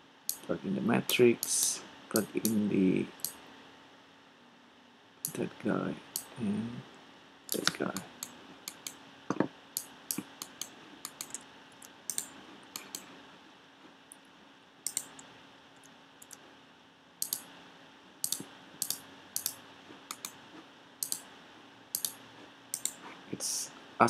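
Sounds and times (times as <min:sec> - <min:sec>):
keyboard keys clicking: 0:07.5 - 0:09.0, 0:10.1 - 0:11.4, 0:12.1 - 0:13.1, 0:14.9 - 0:15.2.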